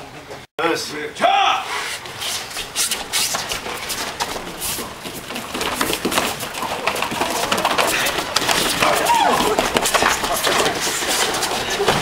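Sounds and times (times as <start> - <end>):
thuds and scuffs of sparring: 2.9 - 12.0.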